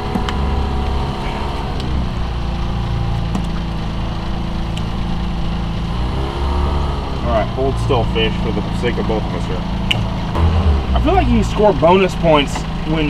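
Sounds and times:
outboard motor idling: 7.2s - 13.0s.

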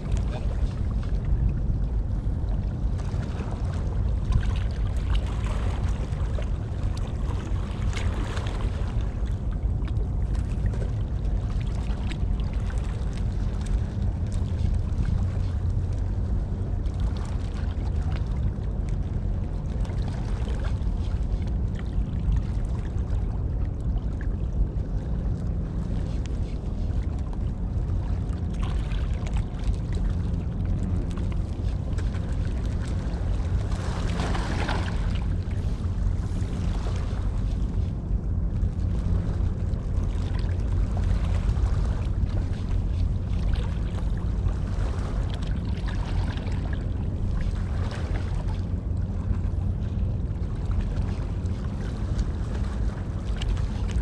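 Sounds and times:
faint harbour water: 0.0s - 54.0s
wind buffeting microphone: 0.0s - 54.0s.

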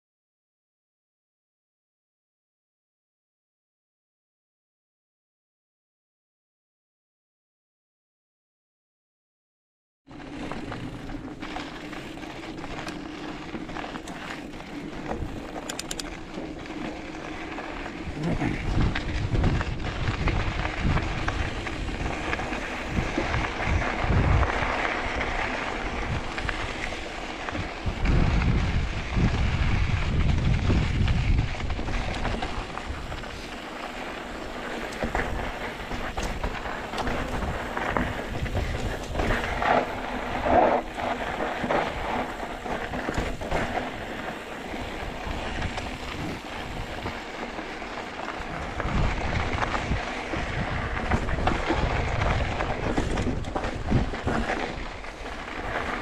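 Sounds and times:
clicks and rattles: 15.5s - 16.1s
wind buffeting the microphone: 18.0s - 33.5s, 34.9s - 41.0s, 41.7s - 47.3s, 48.4s - 56.0s.

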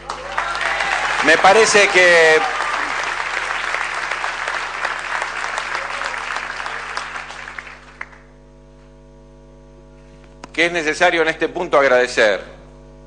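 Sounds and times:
audience applauding: 0.0s - 8.3s
mains hum: 0.0s - 13.0s.

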